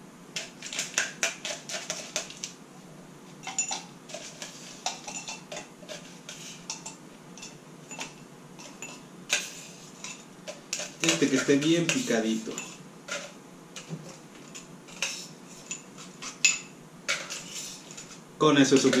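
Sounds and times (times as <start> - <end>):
spoon clinking and scraping ice: 3.4 - 13.4, 14.4 - 19.0.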